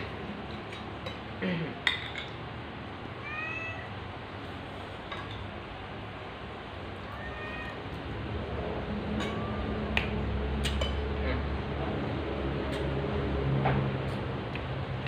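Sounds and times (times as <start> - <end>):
cat meowing: 3.2 - 4.0, 7.0 - 7.9.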